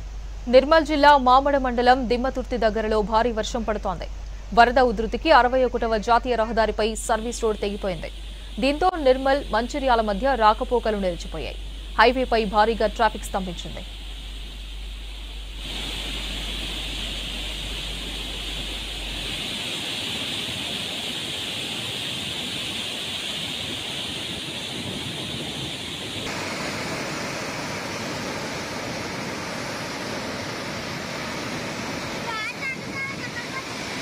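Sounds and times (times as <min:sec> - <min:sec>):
low hum: 0:00.0 - 0:21.1
water rushing through spillway: 0:15.5 - 0:34.0.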